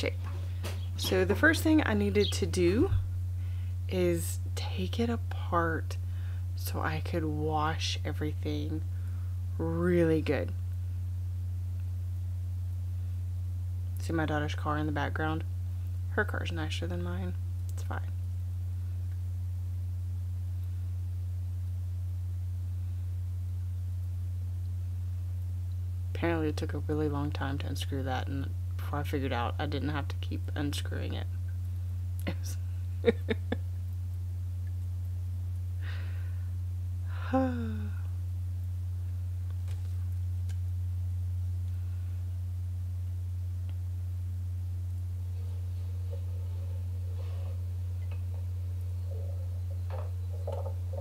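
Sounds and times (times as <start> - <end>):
steady low hum: 0.0 - 51.0
person sighing: 37.1 - 38.1.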